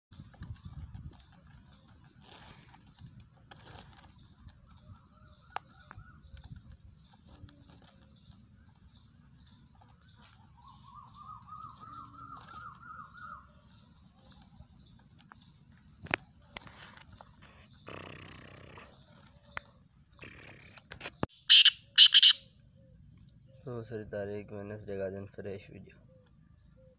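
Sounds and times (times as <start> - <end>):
bird calling rising notes: 10.1 - 13.6, 21.4 - 23.4.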